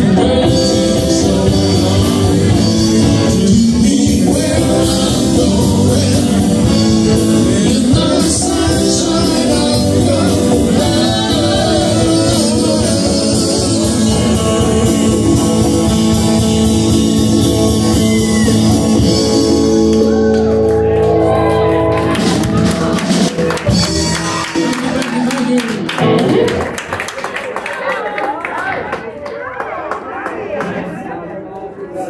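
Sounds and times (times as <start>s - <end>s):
man singing: 0.0s - 20.0s, 23.8s - 26.2s
drum kit beat: 0.0s - 26.8s
electric guitars: 0.0s - 27.1s.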